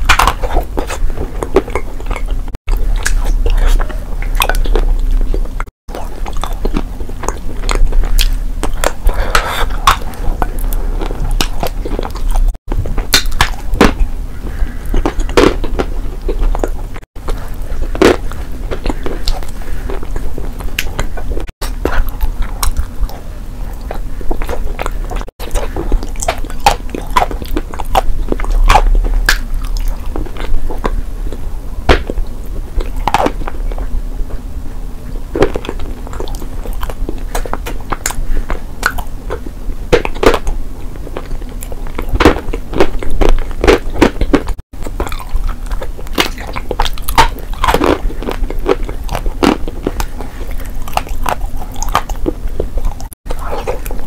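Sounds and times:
wet mouth sounds: 0.0s - 33.9s.

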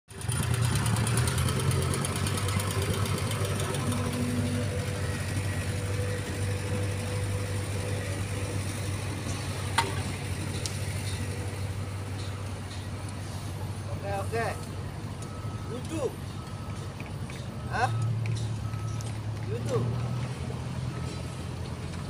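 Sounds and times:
plate compactor running: 0.1s - 12.3s.

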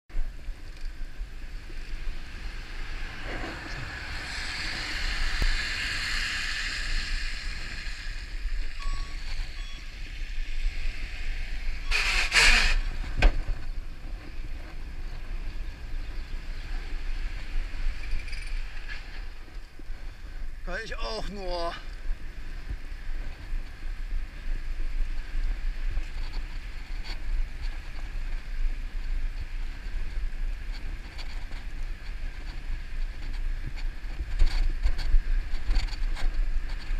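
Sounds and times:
wind rushing on camera: 0.1s - 36.9s
bike tyres hissing on wet asphalt: 1.0s - 8.8s, 10.0s - 13.2s.

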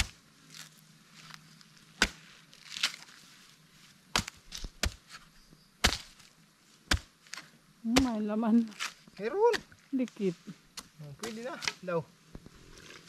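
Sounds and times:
machete chopping coconut husk: 0.0s - 0.7s, 1.9s - 3.1s, 4.1s - 6.3s, 6.9s - 9.8s, 10.7s - 11.9s.

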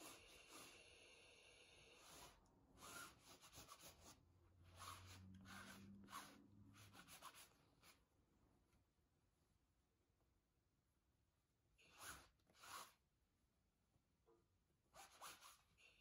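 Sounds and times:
lint roller peeling over fabric: 4.7s - 7.4s, 11.8s - 13.0s.

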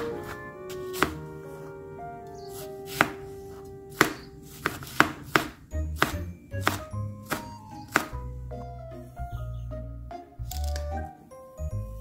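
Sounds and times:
soft background music: 0.0s - 12.0s
knife knocking on cutting board: 3.9s - 8.2s.

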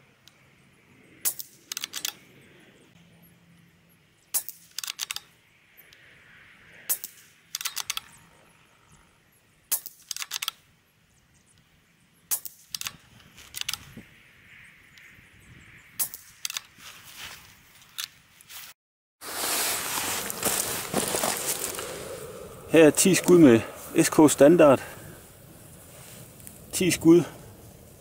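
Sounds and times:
rifle action clicking: 1.3s - 2.2s, 4.5s - 5.3s, 7.5s - 8.1s, 9.8s - 10.6s.

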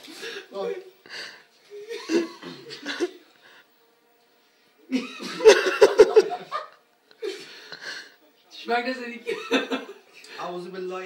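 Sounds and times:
men laughing: 1.1s - 3.6s, 4.8s - 8.2s, 9.2s - 10.3s.

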